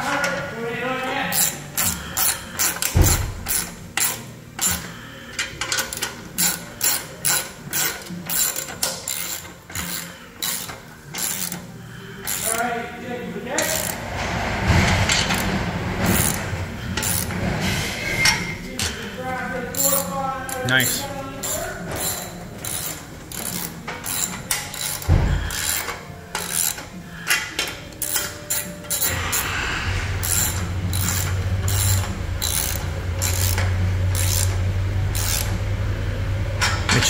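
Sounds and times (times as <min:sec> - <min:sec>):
socket ratchet clicking: 0:01.3 - 0:04.9, 0:05.6 - 0:12.6, 0:21.4 - 0:29.5, 0:30.2 - 0:35.6.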